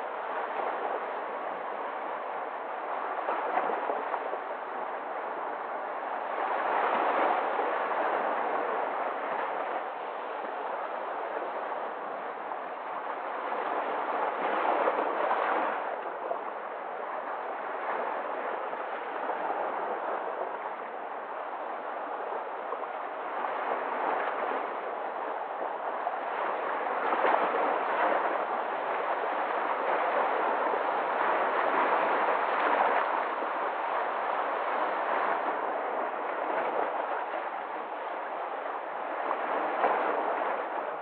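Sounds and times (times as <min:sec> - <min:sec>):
sea waves breaking on rocks: 0:22.4 - 0:41.0.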